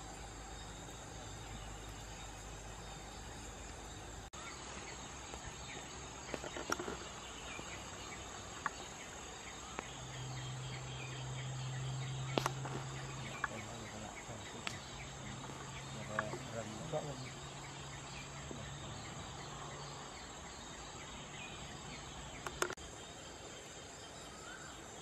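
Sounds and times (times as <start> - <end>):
insects chirring: 0.0 - 25.0
faint clicks: 22.4 - 22.8.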